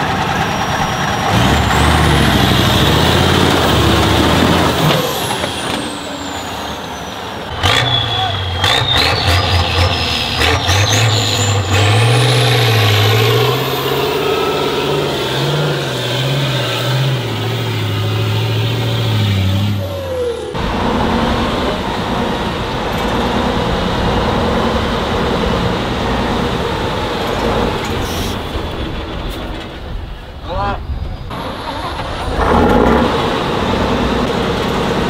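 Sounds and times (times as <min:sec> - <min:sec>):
truck engine working hard: 0:00.0 - 0:35.0.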